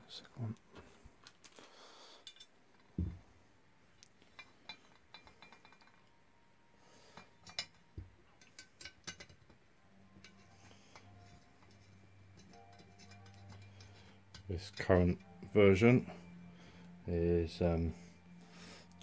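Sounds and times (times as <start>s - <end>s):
light metallic clinks and clicks: 1.2s - 3.0s, 4.0s - 6.2s, 7.0s - 17.0s.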